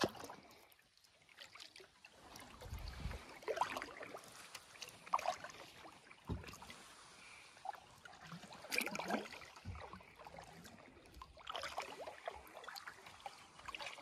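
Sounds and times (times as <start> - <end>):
sharp splashes: 0.0 - 0.5
water sloshing and gurgling: 0.0 - 14.0.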